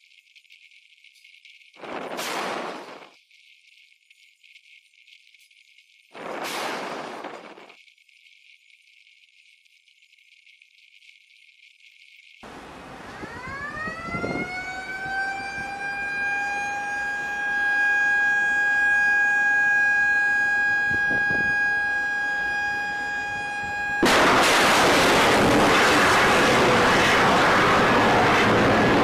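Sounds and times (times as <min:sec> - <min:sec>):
rocket motor rush: 0:01.8 - 0:03.2, 0:06.2 - 0:07.8, 0:12.4 - 0:29.0
high whine rising in pitch: 0:12.4 - 0:29.0.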